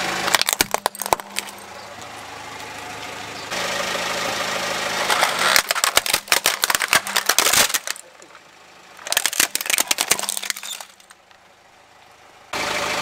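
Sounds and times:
car engine idling: 0.0s - 13.0s
plastic toy cracking and snapping: 0.3s - 1.5s, 5.1s - 8.1s, 9.0s - 11.2s.

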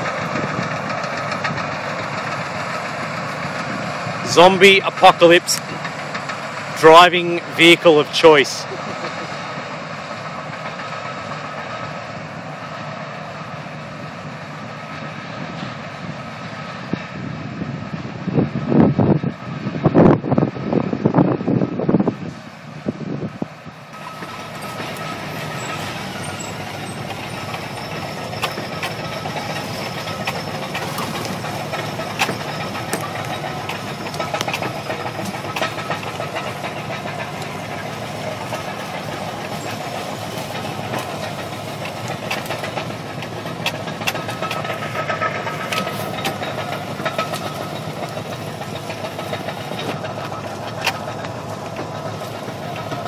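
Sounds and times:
wind buffeting microphone: 0.0s - 4.4s, 15.3s - 27.6s
bulldozer diesel engine running: 0.0s - 53.0s
metallic clanks and rattles: 24.0s - 53.0s.

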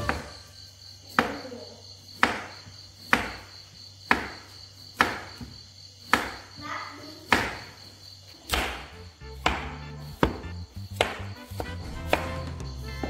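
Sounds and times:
knife chopping on wooden board: 0.0s - 0.5s, 1.1s - 1.4s, 2.2s - 6.6s, 7.3s - 7.8s, 8.5s - 13.0s.

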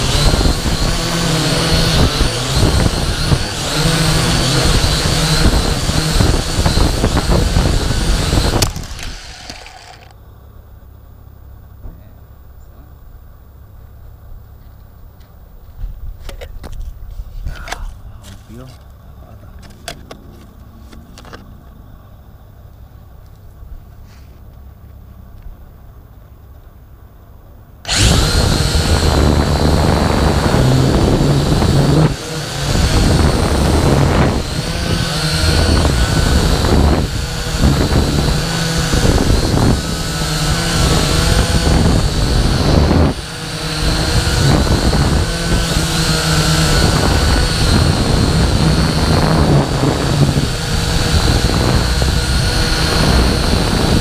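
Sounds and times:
drone propellers whining: 0.0s - 10.1s, 27.8s - 54.0s.

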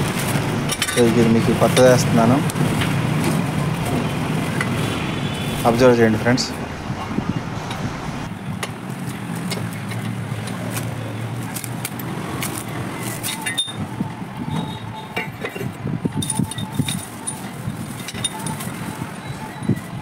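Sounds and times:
low hum: 0.0s - 8.4s
metal stand clinking: 13.2s - 13.8s.

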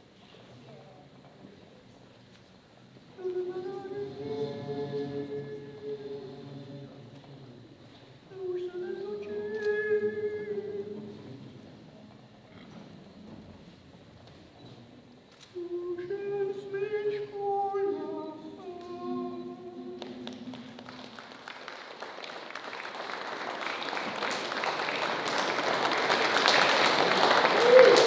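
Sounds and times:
audience applause: 20.0s - 28.0s.

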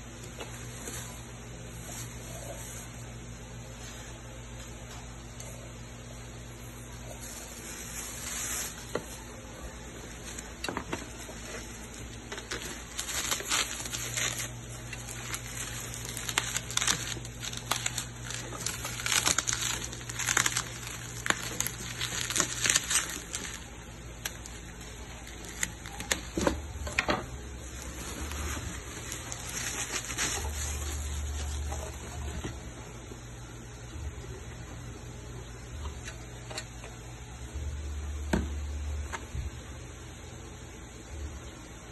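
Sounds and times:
plastic and bubble wrap crinkling: 0.0s - 5.6s, 6.2s - 33.1s.

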